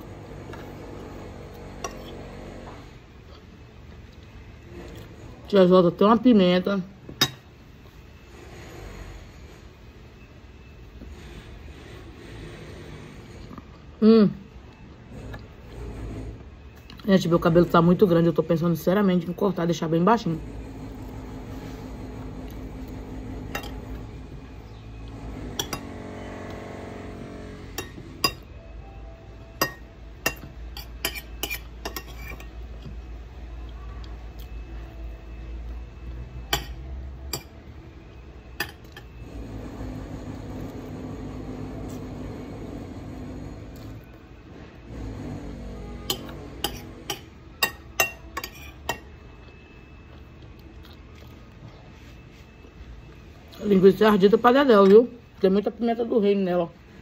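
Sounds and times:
cutlery clinking on a plate: 29.6s - 32.5s, 46.1s - 49.1s.

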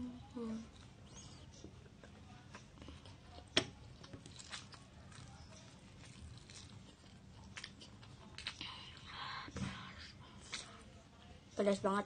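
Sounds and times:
person chewing noodles: 2.6s - 9.2s.

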